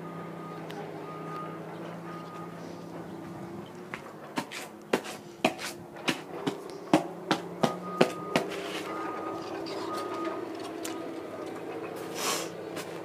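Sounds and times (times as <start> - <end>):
shoes knocking on concrete: 3.9 - 8.6.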